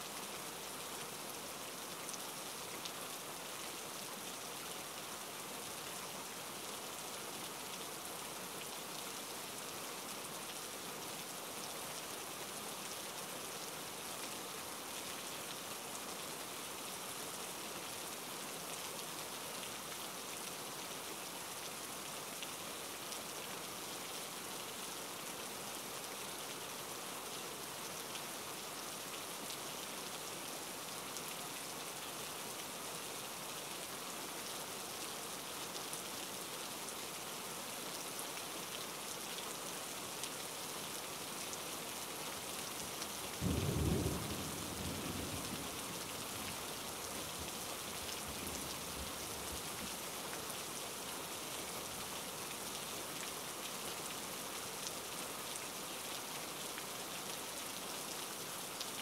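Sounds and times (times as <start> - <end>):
rain hissing: 43.3 - 50.0.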